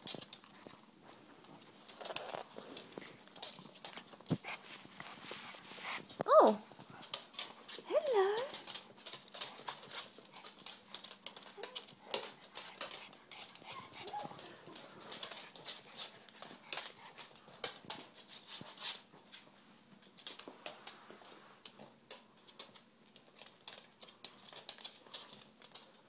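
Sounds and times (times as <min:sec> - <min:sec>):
dog claws clicking on wood floor: 0:00.0 - 0:26.0
faint puppy whimpers: 0:06.2 - 0:06.6.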